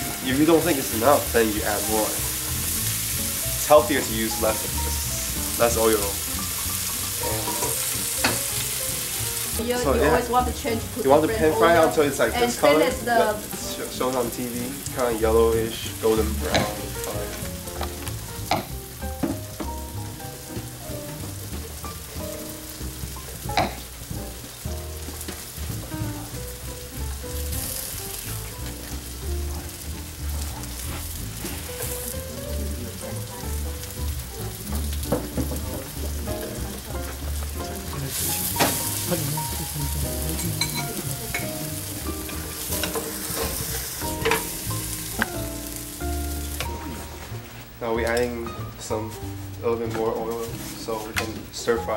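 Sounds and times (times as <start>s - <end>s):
tofu sizzling in oil: 0.0s - 47.9s.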